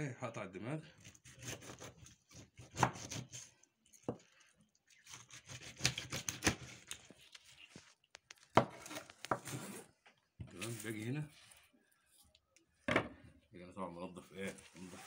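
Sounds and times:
knife sawing through fish: 1.0 - 3.5, 5.0 - 7.0.

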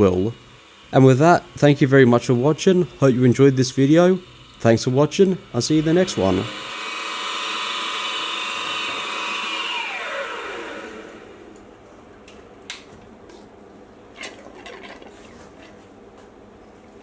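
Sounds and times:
milling machine spindle whining: 0.0 - 11.7.

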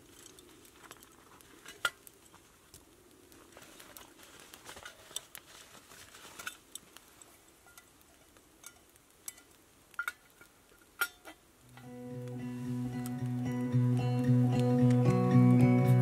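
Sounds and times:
soft rustling: 0.0 - 9.5.

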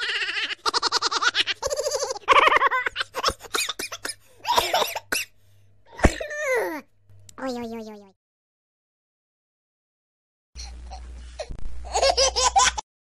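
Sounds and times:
child giggling: 0.0 - 3.6, 10.6 - 12.8.

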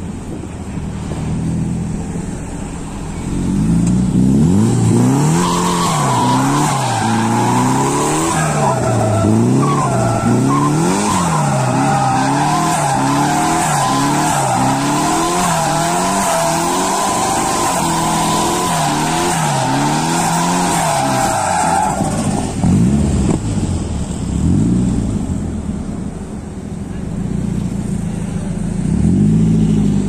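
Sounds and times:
car engine revving: 0.0 - 30.0
tire squeal: 2.6 - 22.7.

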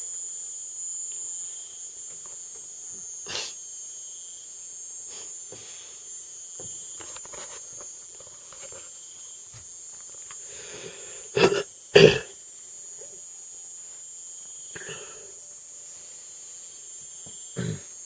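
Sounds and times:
crickets chirring: 0.0 - 18.0.

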